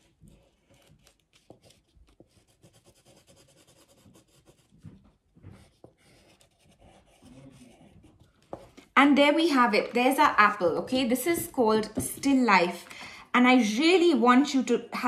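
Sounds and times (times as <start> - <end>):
oil pastel scratching on paper: 0.0 - 8.7.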